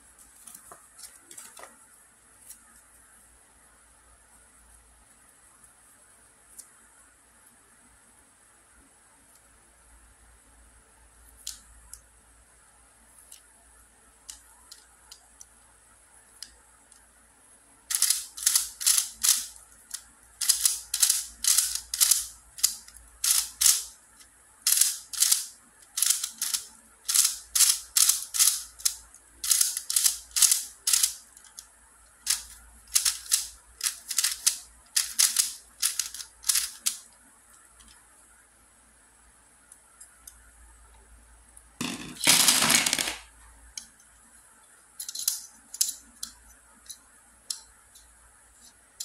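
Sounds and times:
puzzle cube layers clacking: 32.3 - 37.0, 41.8 - 43.2.

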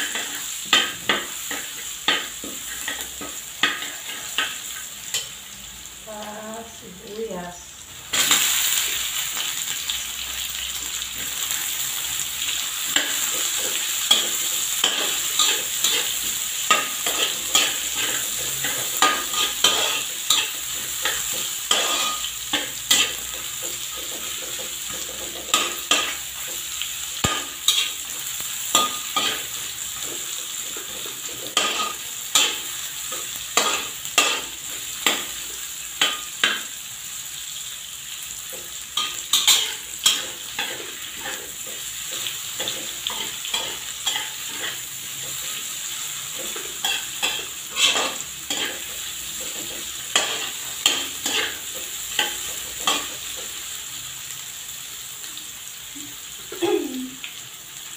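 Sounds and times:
onions sizzling in hot oil: 0.0 - 57.9
metal spatula scraping wok: 12.9 - 24.2, 27.2 - 35.3, 46.2 - 53.2.

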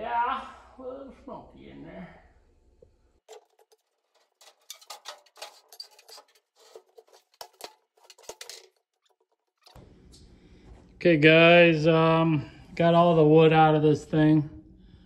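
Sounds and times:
wooden boards clattering: 3.3 - 9.8.

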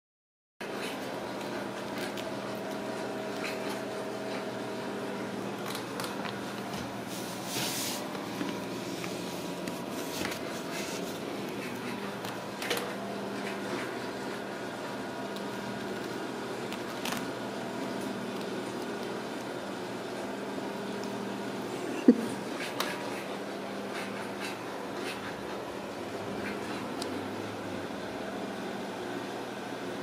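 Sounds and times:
steady mechanical hum: 0.6 - 30.0.

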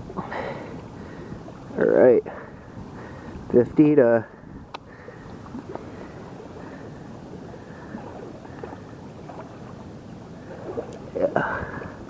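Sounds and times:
faint clicks: 4.7 - 4.9.

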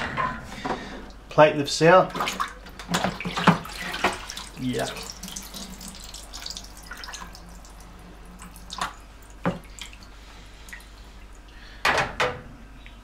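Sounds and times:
water dripping and trickling: 2.2 - 11.6.

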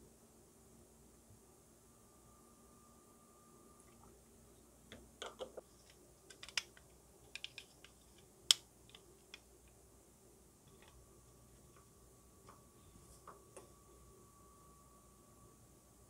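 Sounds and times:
plastic parts clicking together: 4.9 - 9.5.

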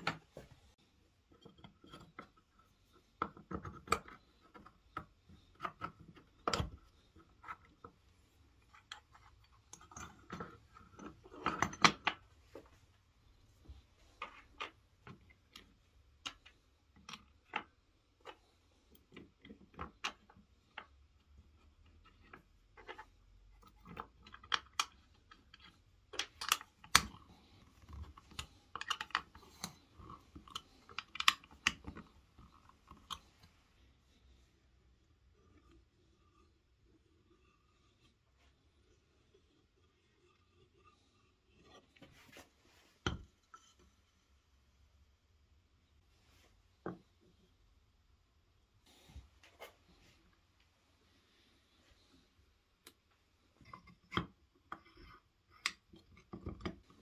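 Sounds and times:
metal and wood parts clicking: 1.2 - 33.8.

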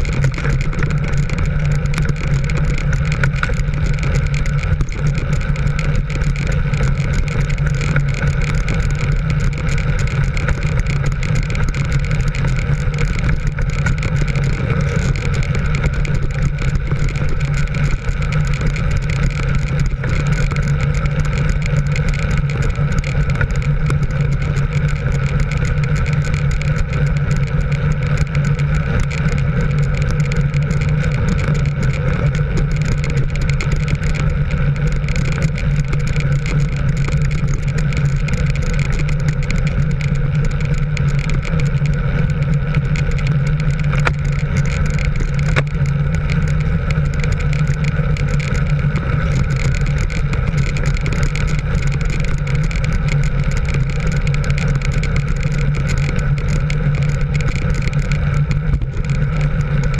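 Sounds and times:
road and wind noise: 0.0 - 59.9
vehicle engine cruising: 0.0 - 59.9.

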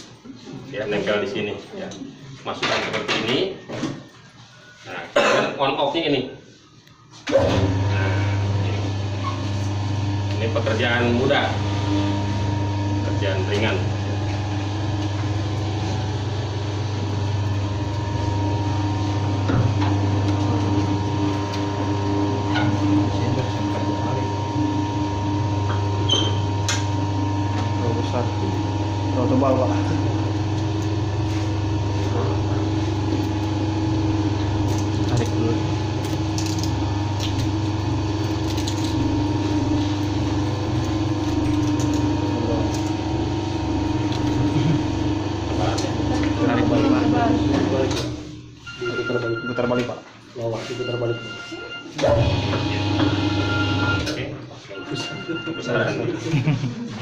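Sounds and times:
machine motor hum: 7.3 - 49.0, 50.7 - 54.4.

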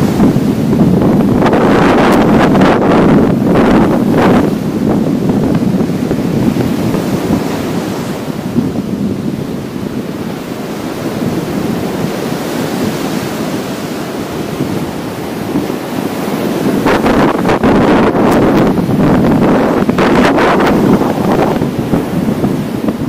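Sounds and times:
sea waves washing up beach: 0.0 - 23.0
wind rumbling on microphone: 0.0 - 23.0.

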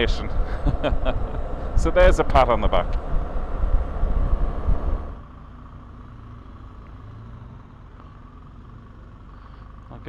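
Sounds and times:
wind and road rush: 0.0 - 9.8
motorcycle engine running: 0.0 - 10.0.

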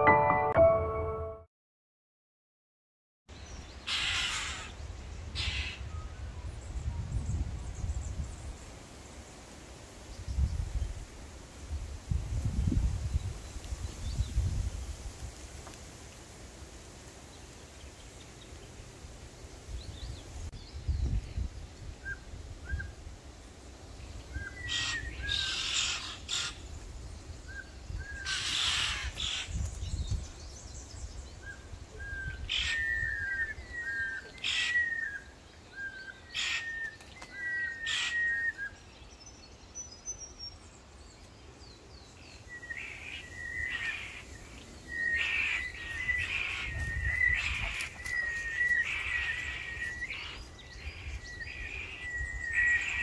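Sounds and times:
harsh bird calls: 3.8 - 6.0, 24.4 - 26.7, 27.9 - 29.7, 32.0 - 38.8, 42.3 - 53.0
wind rumble on microphone: 4.8 - 9.1, 10.0 - 15.6, 19.6 - 25.6, 26.6 - 33.8, 44.2 - 53.0
birds chirping: 23.9 - 53.0.

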